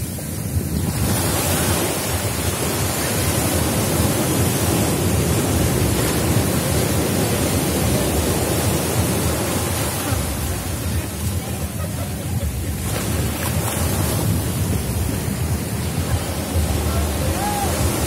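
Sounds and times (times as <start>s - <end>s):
sea surf breaking on shore: 0.0s - 18.0s
wind on microphone: 0.0s - 18.0s.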